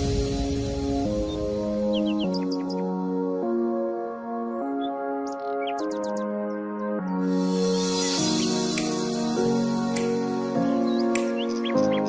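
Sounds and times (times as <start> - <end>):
sustained music chords: 6.4 - 12.0
sharp percussive tick: 8.7 - 9.1, 9.9 - 10.2, 11.1 - 11.4.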